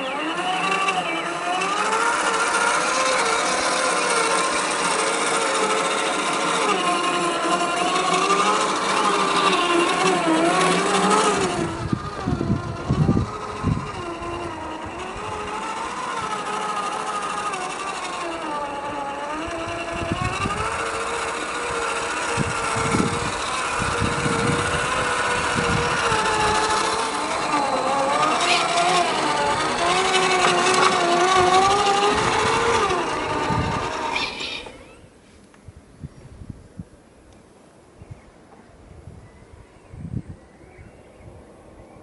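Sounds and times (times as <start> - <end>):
electric motor and gearbox whining: 0.0 - 35.2.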